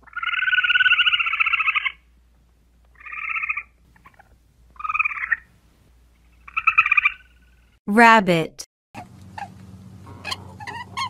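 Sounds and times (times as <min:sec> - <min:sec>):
squirrel chattering trills: 0:00.0 - 0:02.0, 0:03.0 - 0:05.4, 0:06.4 - 0:07.4.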